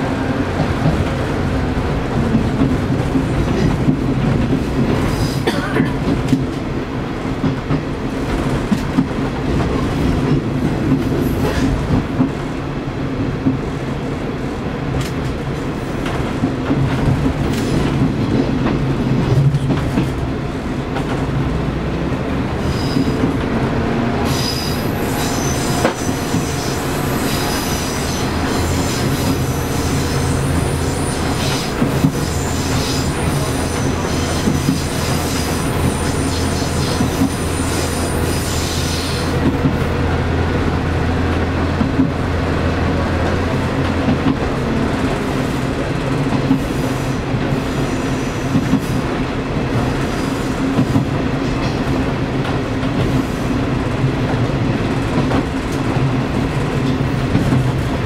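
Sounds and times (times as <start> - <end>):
clacks over rail joints: 0.5 - 6.7, 14.9 - 21.7, 41.3 - 42.3, 43.1 - 47.6, 50.7 - 53.2, 53.8 - 58.0
high wheel squeal: 24.2 - 39.3.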